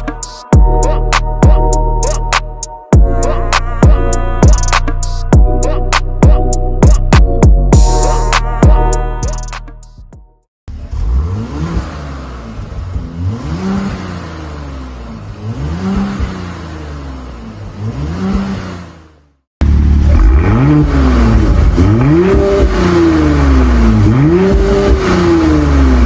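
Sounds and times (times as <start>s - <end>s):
car engine revving: 10.7s - 26.0s.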